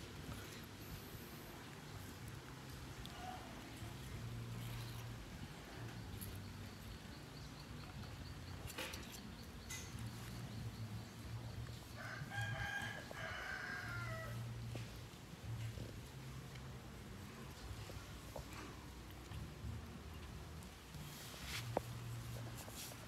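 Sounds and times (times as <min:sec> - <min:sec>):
rooster crowing: 0:11.9 - 0:14.4.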